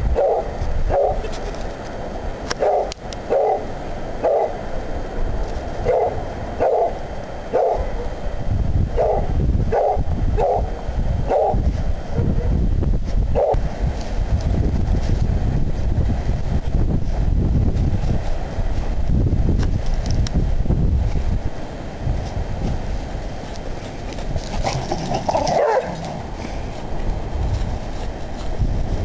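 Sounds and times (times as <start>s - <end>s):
dogs barking: 0.2s - 1.3s, 2.6s - 4.6s, 5.8s - 8.1s, 9.0s - 11.6s, 13.4s - 13.6s, 24.6s - 26.2s.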